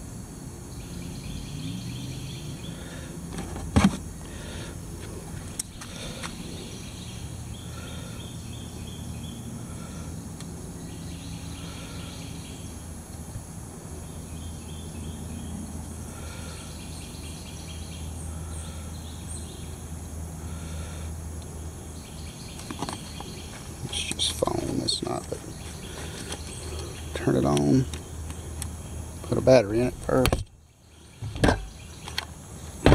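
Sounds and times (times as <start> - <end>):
low outdoor hum: 0.0 - 32.9
bird calling: 10.8 - 12.8, 22.0 - 30.2.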